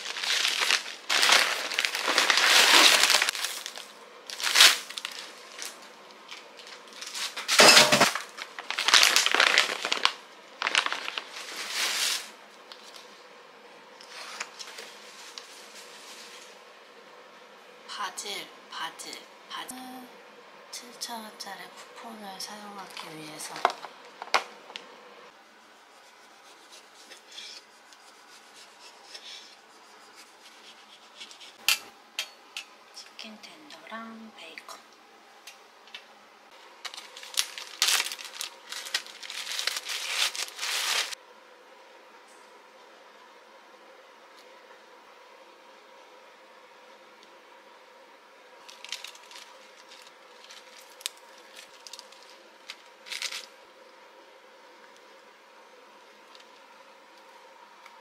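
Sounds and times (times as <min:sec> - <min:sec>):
lettuce leaves rustling: 0:00.0 - 0:13.0, 0:36.8 - 0:41.2, 0:48.6 - 0:53.5
faint hum: 0:00.0 - 0:58.0.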